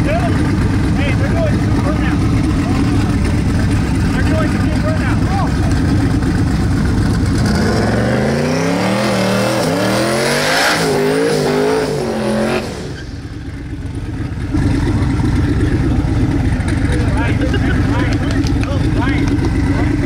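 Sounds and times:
engine idling rumble: 0:00.0 - 0:07.9, 0:12.7 - 0:20.0
cars accelerating through gears: 0:07.4 - 0:13.1.

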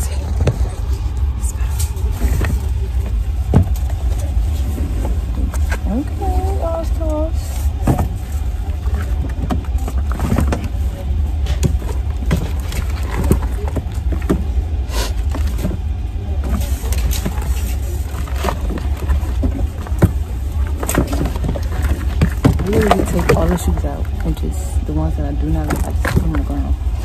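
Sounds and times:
steady low rumble: 0:00.0 - 0:27.0
shoes knocking and clattering: 0:02.2 - 0:06.1, 0:07.7 - 0:14.6, 0:15.2 - 0:24.3.

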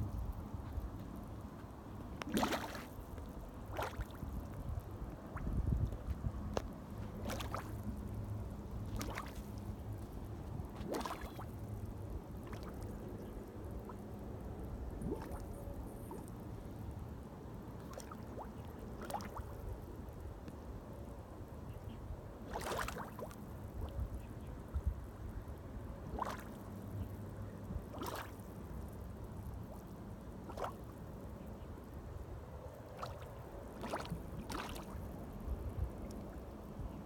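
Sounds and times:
mud gurgling plop: 0:02.2 - 0:04.4, 0:07.1 - 0:08.1, 0:08.7 - 0:09.8, 0:10.7 - 0:11.7, 0:12.4 - 0:13.1, 0:15.0 - 0:16.2, 0:17.8 - 0:19.6, 0:22.5 - 0:23.4, 0:26.1 - 0:26.6, 0:27.9 - 0:28.4, 0:30.4 - 0:30.9, 0:33.0 - 0:35.1.

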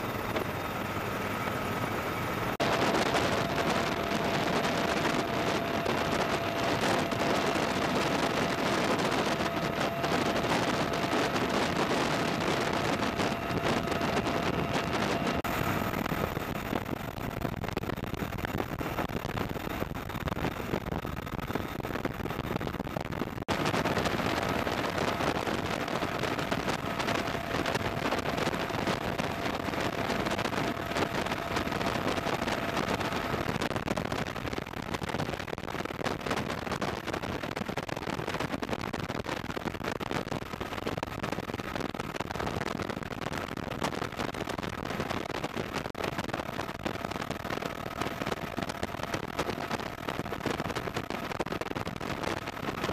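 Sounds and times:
helicopter rotor and turbine: 0:00.0 - 0:22.5, 0:23.5 - 0:33.8, 0:46.0 - 0:51.3
faint steady whine: 0:00.0 - 0:52.9
wind on microphone: 0:02.4 - 0:52.9.

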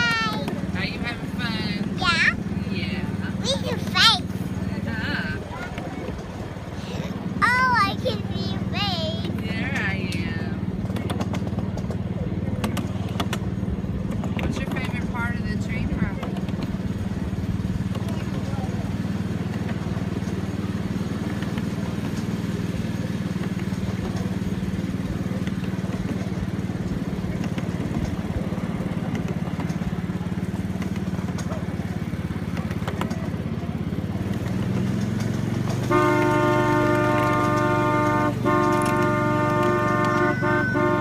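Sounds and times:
miniature train humming: 0:00.0 - 0:41.0
train horn toot: 0:35.8 - 0:41.0.

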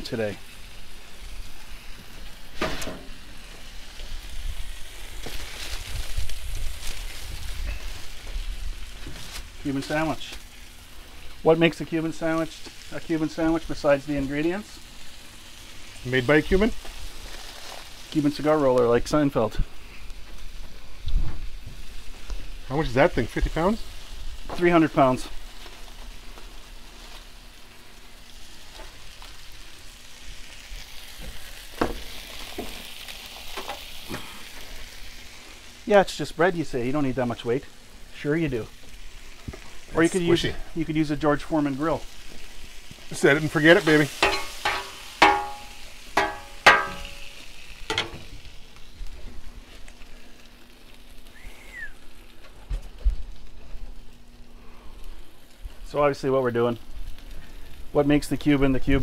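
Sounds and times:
food sizzling on a griddle: 0:00.0 - 0:59.0
metal spatula clanking and scraping: 0:43.8 - 0:47.2, 0:47.9 - 0:48.2.

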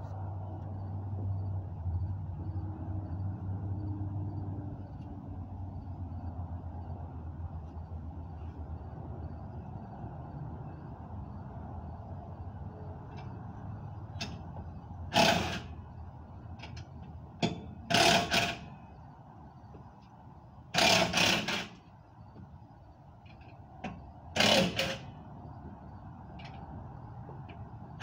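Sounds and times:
power tool bursts: 0:15.1 - 0:15.7, 0:17.9 - 0:18.7, 0:20.8 - 0:21.8, 0:24.4 - 0:25.1.

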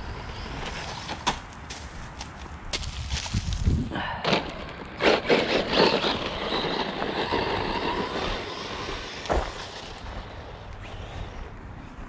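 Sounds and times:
tyres crunching gravel: 0:00.2 - 0:11.4
electric motor whining: 0:05.0 - 0:10.1.

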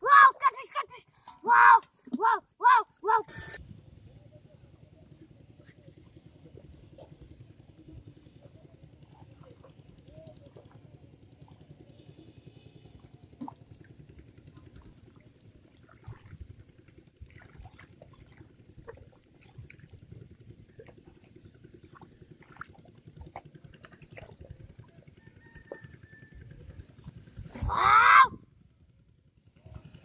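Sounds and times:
low steady rumble: 0:00.0 - 0:30.0
hands squelching in wet mud: 0:17.2 - 0:19.9.

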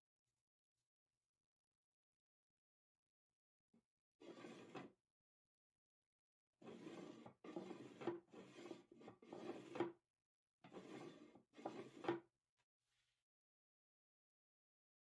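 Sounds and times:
wooden lid rubbing in grooves: 0:06.6 - 0:10.0, 0:10.7 - 0:12.2.

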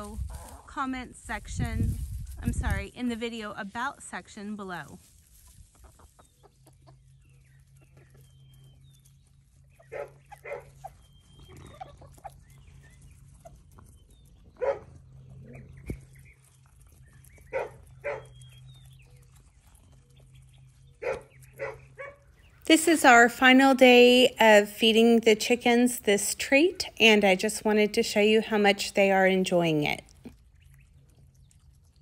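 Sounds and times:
chickens clucking softly: 0:05.4 - 0:08.8, 0:09.7 - 0:18.4
dog barking: 0:09.9 - 0:10.7, 0:14.6 - 0:14.9, 0:17.5 - 0:18.4, 0:21.0 - 0:22.2.

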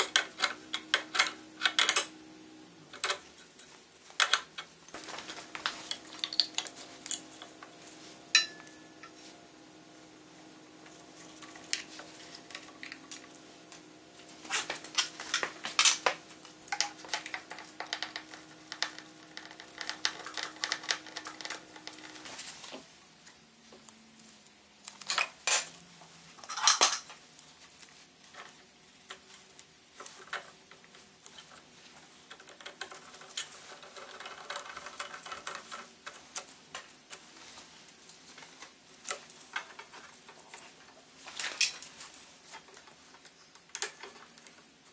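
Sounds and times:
metal parts and tools clinking: 0:08.3 - 0:09.1, 0:26.4 - 0:27.2.

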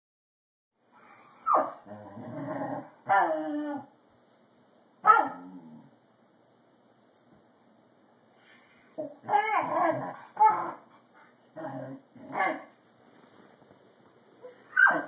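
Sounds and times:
dog yelp: 0:00.9 - 0:01.8, 0:05.0 - 0:05.4, 0:14.4 - 0:15.0
dog growl: 0:01.8 - 0:03.9, 0:05.3 - 0:05.9, 0:09.2 - 0:10.8, 0:11.5 - 0:12.6
dog barking: 0:05.0 - 0:05.4.

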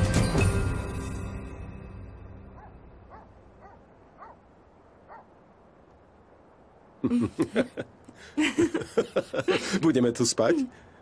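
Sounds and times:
background music: 0:00.0 - 0:03.8
animal yipping calls: 0:02.6 - 0:05.4.

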